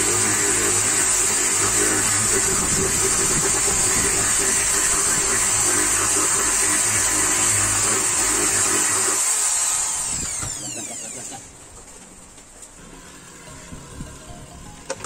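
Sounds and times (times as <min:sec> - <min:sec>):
electric drill boring: 0:00.0 - 0:11.6.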